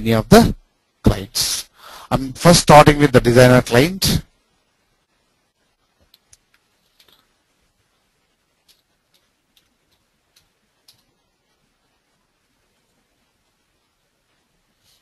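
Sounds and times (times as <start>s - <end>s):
mouse and keyboard clicks: 8.6s - 11.1s.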